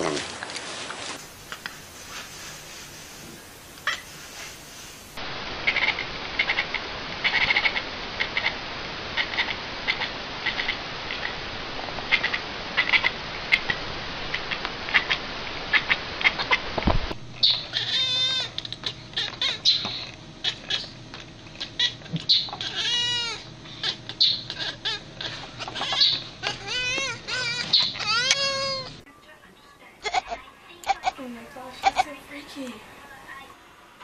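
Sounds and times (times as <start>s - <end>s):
background hiss: 0.0s - 21.0s, 22.1s - 34.0s
cat chattering: 5.7s - 8.6s, 9.2s - 11.4s, 12.1s - 16.6s, 17.4s - 29.0s, 30.0s - 31.2s, 31.8s - 32.1s
cat meowing: 17.4s - 20.9s, 21.6s - 29.0s.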